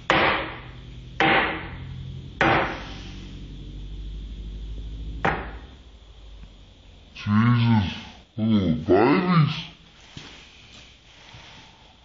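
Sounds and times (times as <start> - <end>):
broom striking tiled floor: 0.0 - 3.5.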